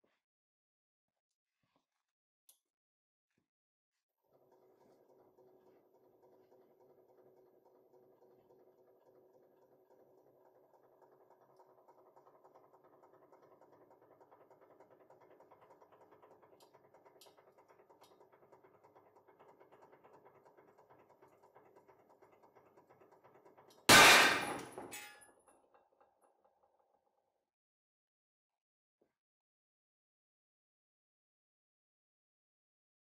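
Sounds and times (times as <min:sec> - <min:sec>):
bolt snapping with loud bang: 0:23.9 - 0:25.0.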